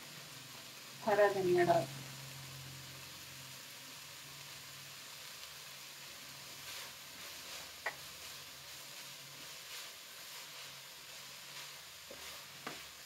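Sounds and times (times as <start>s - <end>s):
minced meat sizzling: 0.0s - 13.0s
wooden spatula scraping wok: 6.0s - 13.0s.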